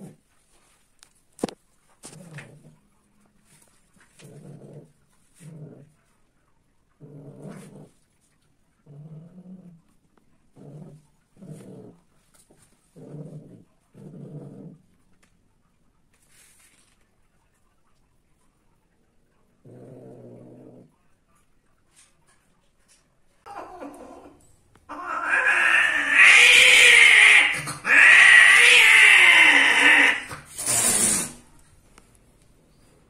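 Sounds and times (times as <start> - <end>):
cat growling moans: 23.4 - 30.3.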